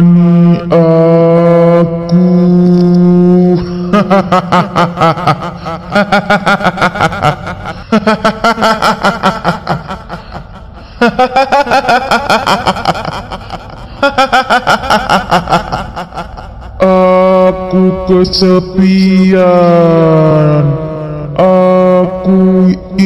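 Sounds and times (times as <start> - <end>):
rapid ghostly female laughter: 3.6 - 17.2.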